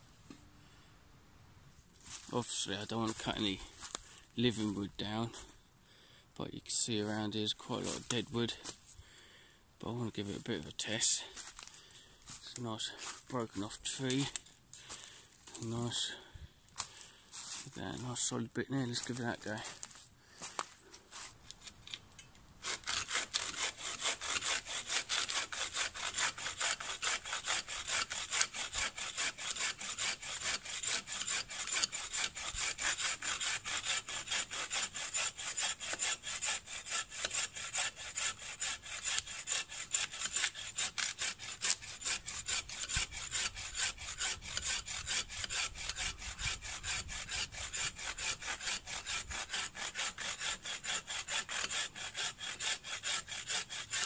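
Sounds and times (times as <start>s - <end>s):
hand saw cutting log: 2.1s - 4.0s, 7.7s - 8.8s, 10.3s - 16.2s, 16.8s - 18.1s, 18.9s - 21.8s, 22.6s - 54.0s.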